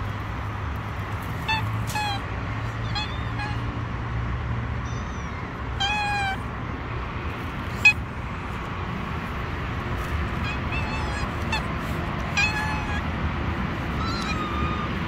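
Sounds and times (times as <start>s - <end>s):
kitten meowing: 1.4s - 3.7s, 4.9s - 6.5s, 7.6s - 8.2s, 10.3s - 15.0s.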